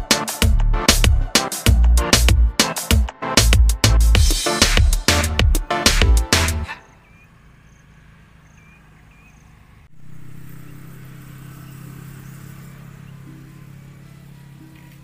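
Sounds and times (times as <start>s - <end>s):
passing vehicle engine hum: 5.8s - 15.0s
bird chirps: 6.7s - 15.0s.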